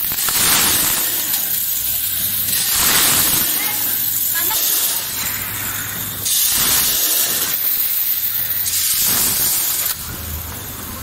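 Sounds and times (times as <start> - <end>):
packing machine hissing: 0.0 - 11.0.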